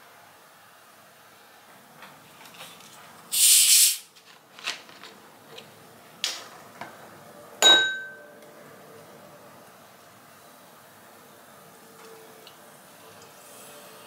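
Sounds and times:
soda bottle gas hissing: 3.3s - 4.1s
metal spoon clinking glass bowl: 7.6s - 8.3s.

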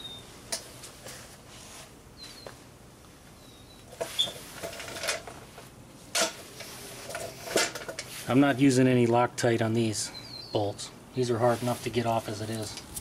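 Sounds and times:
faint bird chirps: 3.4s - 4.4s, 10.1s - 10.8s.

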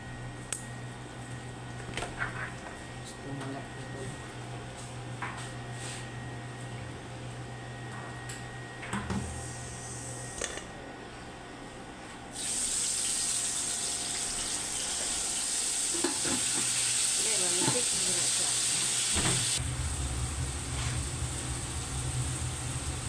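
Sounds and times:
food sizzling in hot pan: 12.4s - 23.0s.

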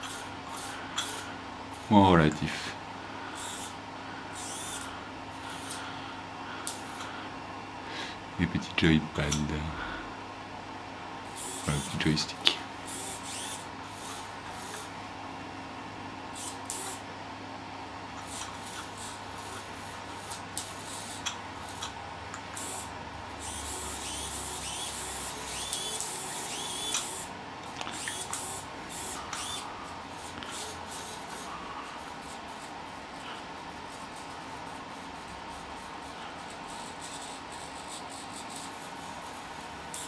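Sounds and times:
servo motors whirring: 0.0s - 1.9s, 3.3s - 5.8s, 11.3s - 12.2s, 12.8s - 14.9s, 16.3s - 17.0s, 18.2s - 22.0s, 22.6s - 32.7s.

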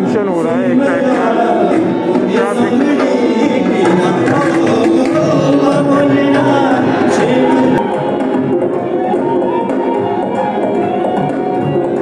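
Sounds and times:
music with drums: 0.0s - 12.0s
held melody line: 0.1s - 12.0s
person singing: 0.4s - 9.0s.

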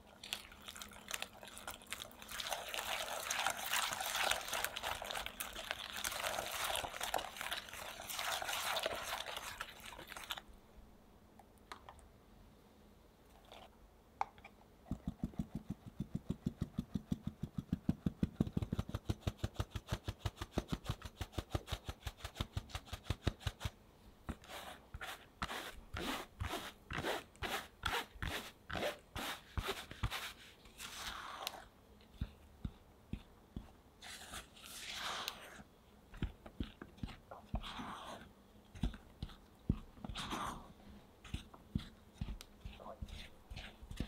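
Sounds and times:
sieve shaken with scratchy strokes: 1.0s - 10.4s, 24.4s - 31.6s, 34.0s - 35.6s, 41.2s - 44.0s
spatula scraping through flour: 3.3s - 10.4s, 24.3s - 44.0s.

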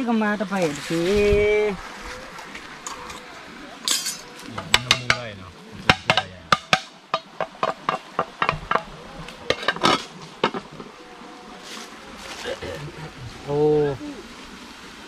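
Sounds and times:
sharp knocks: 4.6s - 8.9s.

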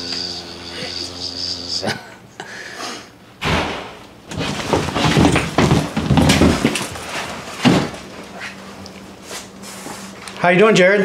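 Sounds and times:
wooden hatch knocking and bumping: 3.4s - 7.0s
scuffling: 4.3s - 8.6s.

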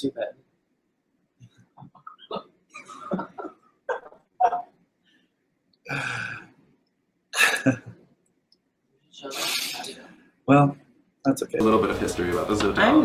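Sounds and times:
man laughing: 2.8s - 4.7s.

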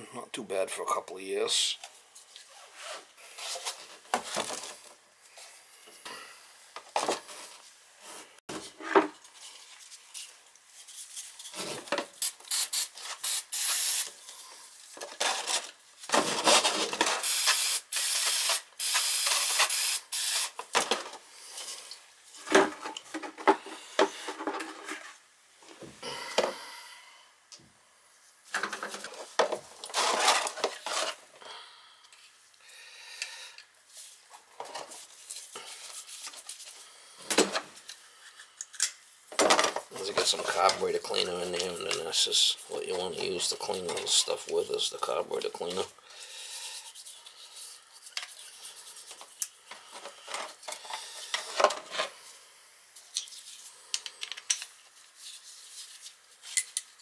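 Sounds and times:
aerosol spray hissing: 12.2s - 14.1s, 17.2s - 20.6s.

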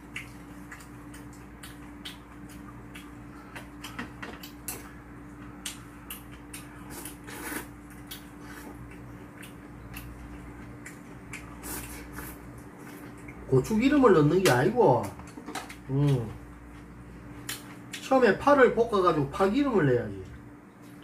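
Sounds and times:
chewing: 0.0s - 13.4s
steady low hum: 0.0s - 21.0s
noodles being slurped: 6.9s - 7.8s, 11.5s - 12.4s.

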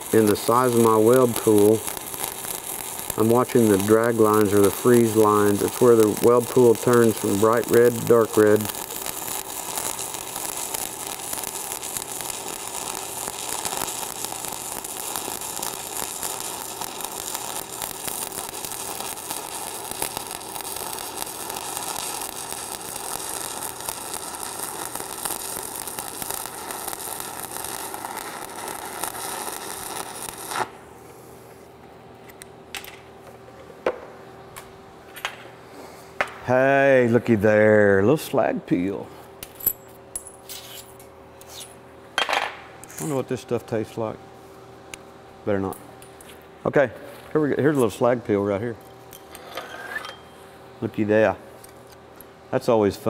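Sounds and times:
welding arc crackling: 0.0s - 30.9s.

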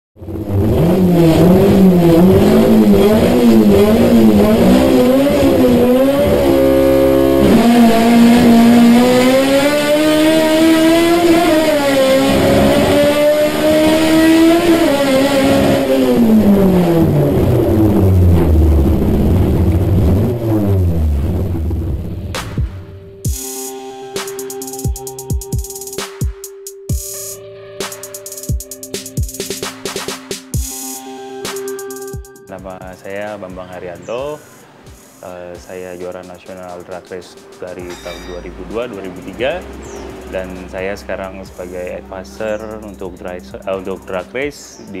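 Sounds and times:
race car engine revving: 0.2s - 22.9s, 37.9s - 44.3s.

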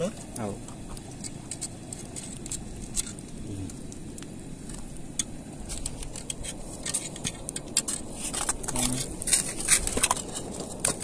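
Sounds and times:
sharp clicks and ticks: 0.3s - 11.0s
wooden pole scraping rock: 5.6s - 11.0s.

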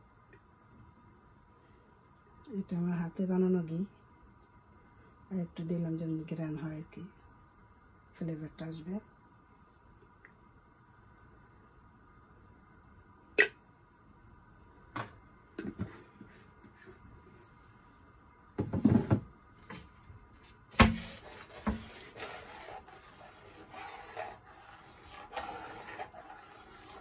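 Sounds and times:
metal ladle scraping pot: 21.0s - 27.0s.

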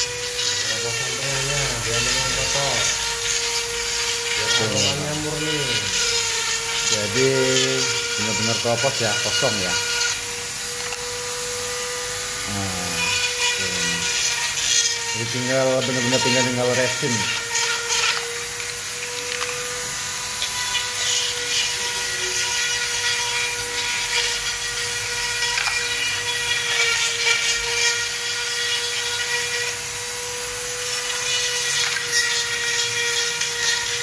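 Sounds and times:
bit scraping wood: 0.0s - 10.2s
electric power tool grinding wood: 0.0s - 34.0s.

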